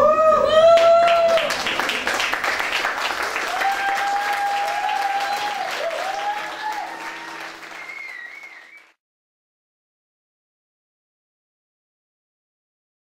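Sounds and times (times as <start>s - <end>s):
audience applauding: 0.7s - 9.0s.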